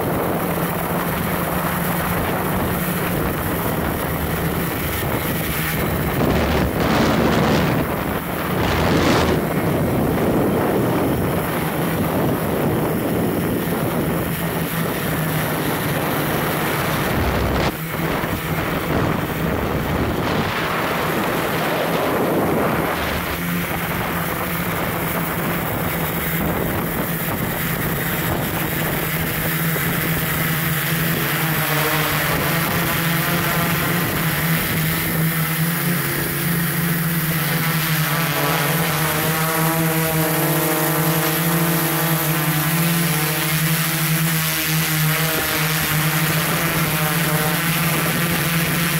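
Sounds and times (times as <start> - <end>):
wind buffeting microphone: 0.0 - 37.8
drone propellers humming: 0.0 - 48.9.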